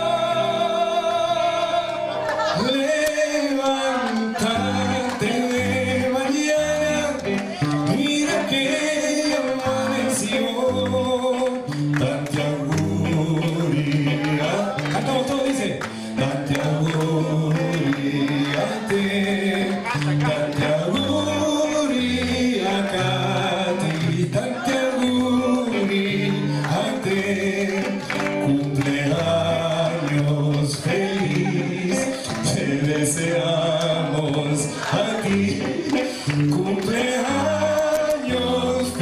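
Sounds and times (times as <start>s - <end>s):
group singing long notes: 0.0s - 39.0s.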